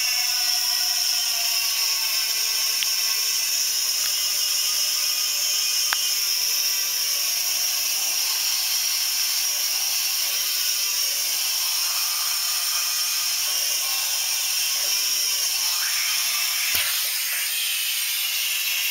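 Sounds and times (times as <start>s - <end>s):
compressed air hissing: 11.7s - 18.9s
sharp click: 16.6s - 17.6s.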